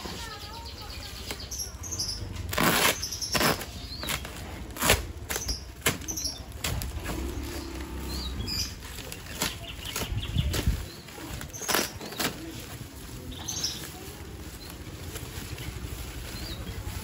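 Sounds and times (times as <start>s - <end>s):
plastic crinkling and rustling: 2.3s - 17.0s
packing tape ripping: 2.4s - 7.4s, 11.4s - 12.6s
plastic sack tearing: 2.4s - 17.0s.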